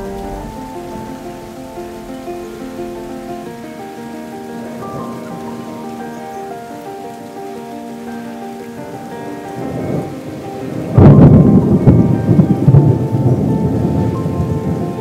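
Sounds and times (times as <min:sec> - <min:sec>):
thunder clap and rolling rumble: 0:00.0 - 0:04.0, 0:09.6 - 0:15.0
rain hissing: 0:00.0 - 0:15.0
soft background music: 0:00.0 - 0:15.0.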